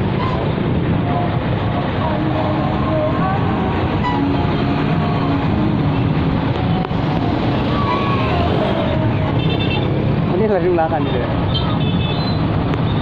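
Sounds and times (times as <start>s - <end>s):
road noise and engines: 0.0s - 13.0s.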